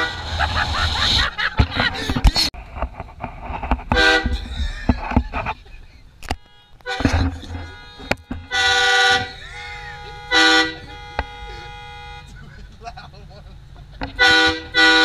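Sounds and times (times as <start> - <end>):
train horn blasts: 3.9 - 4.4, 6.4 - 12.3, 14.2 - 15.0.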